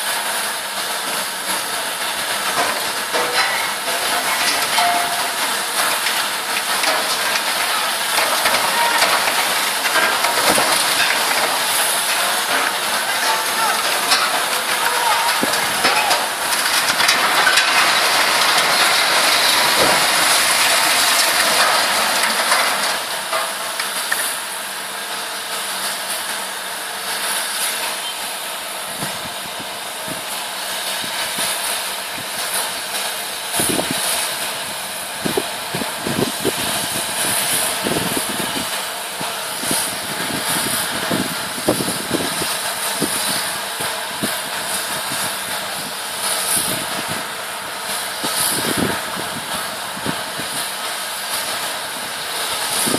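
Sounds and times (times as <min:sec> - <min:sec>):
excavator engine running: 0:00.0 - 0:52.9
crash of falling masonry: 0:01.6 - 0:24.5.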